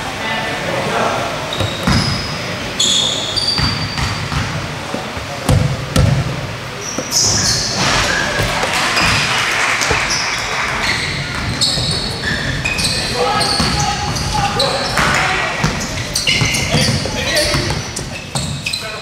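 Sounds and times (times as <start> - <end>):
shoes squeaking on court floor: 1.5 - 19.0
ball bouncing: 1.6 - 2.2, 3.6 - 12.6, 14.9 - 18.6.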